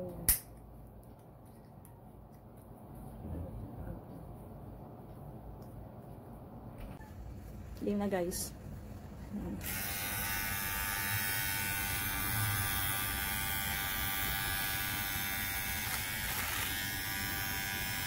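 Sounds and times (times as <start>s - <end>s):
electric beard trimmer buzzing: 9.6s - 18.0s.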